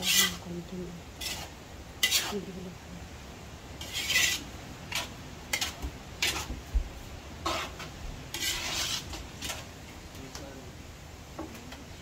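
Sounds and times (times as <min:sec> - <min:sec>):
metal spatula scraping wok: 0:00.0 - 0:00.5, 0:01.2 - 0:02.5, 0:03.8 - 0:06.6, 0:07.4 - 0:09.7.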